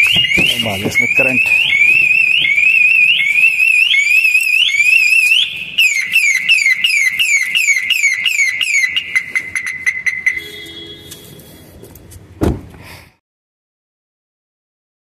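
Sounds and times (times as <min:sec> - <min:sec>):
car alarm siren: 0:00.0 - 0:11.3.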